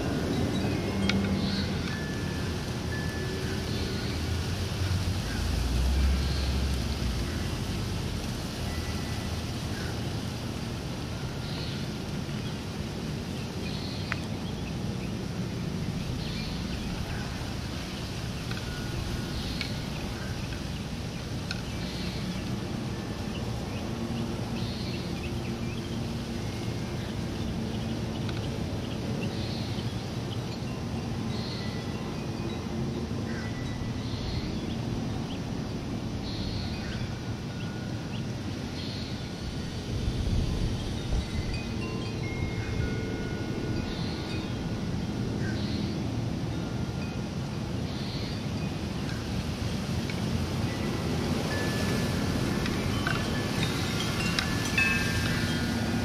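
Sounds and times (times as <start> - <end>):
wind chime tones: 0.0 - 4.7, 8.6 - 9.4, 18.4 - 20.2, 30.5 - 35.0, 36.4 - 49.2, 50.2 - 56.0
outdoor background rumble: 0.0 - 56.0
wind on microphone: 32.0 - 47.9.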